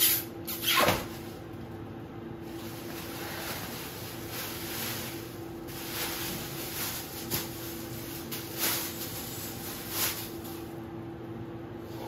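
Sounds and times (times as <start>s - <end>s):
plastic bag crinkling: 2.4s - 10.8s.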